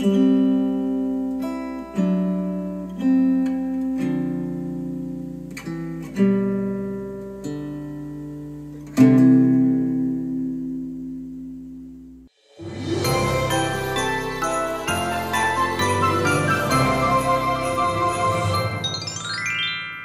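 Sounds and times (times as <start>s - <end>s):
plucked acoustic guitar music: 0.0s - 12.2s.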